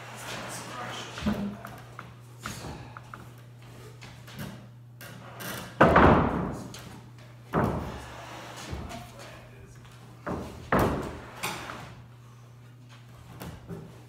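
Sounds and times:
steady low hum: 0:00.0 - 0:14.0
heavy knocks on shop floor: 0:05.8 - 0:06.8.

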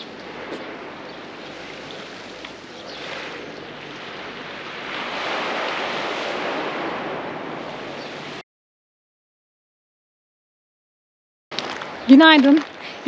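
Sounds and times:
small waves washing onto beach: 0:00.0 - 0:08.4, 0:11.5 - 0:13.0
wind on microphone: 0:00.0 - 0:08.4.

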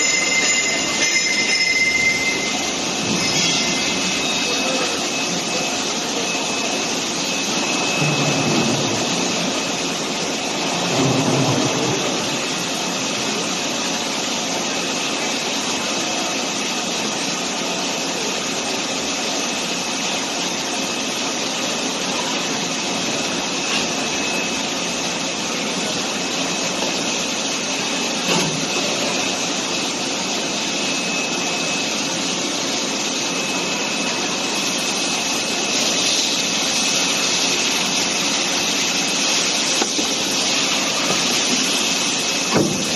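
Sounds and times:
thin high tone: 0:00.0 - 0:09.5.

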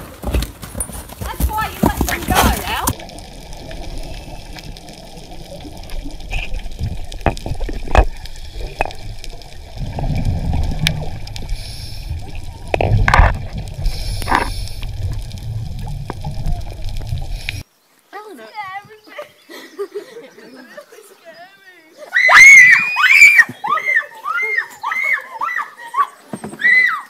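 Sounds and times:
gurgling and bubbling: 0:01.6 - 0:17.6
underwater water rumbling: 0:02.1 - 0:17.6.

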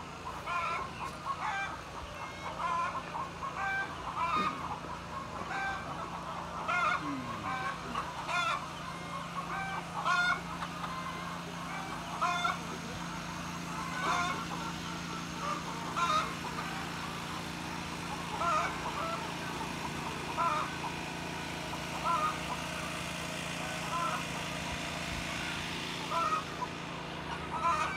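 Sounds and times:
hens clucking: 0:00.0 - 0:27.9
steady low hum: 0:00.0 - 0:27.9.

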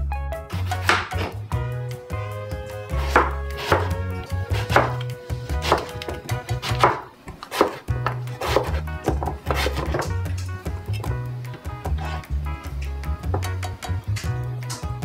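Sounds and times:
background music: 0:00.0 - 0:15.0
knife chopping on plastic board: 0:00.7 - 0:01.4, 0:03.0 - 0:10.2.

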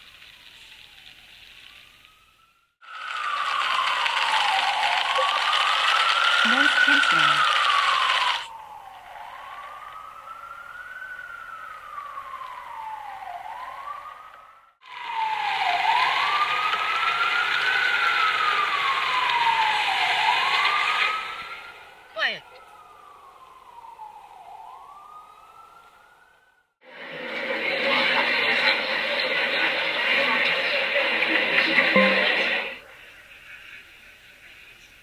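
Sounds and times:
emergency siren wailing: 0:00.3 - 0:32.8
hiss of street noise: 0:26.8 - 0:35.0.

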